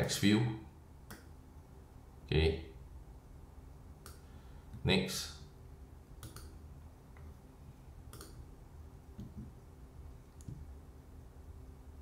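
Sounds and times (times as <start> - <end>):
computer mouse clicks: 4.0 - 4.2, 6.2 - 6.6, 8.1 - 8.4.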